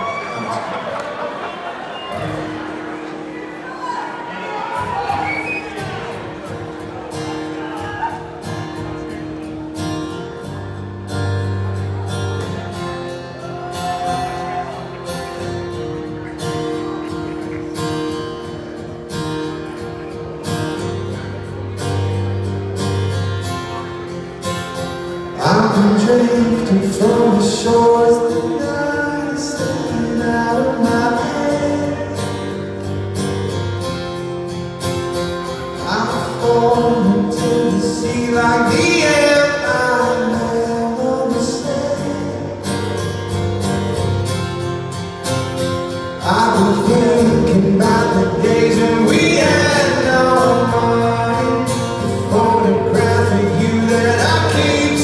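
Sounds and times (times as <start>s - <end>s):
acoustic guitar: 0.0s - 55.0s
man singing: 25.3s - 32.9s, 35.6s - 43.0s, 46.2s - 55.0s.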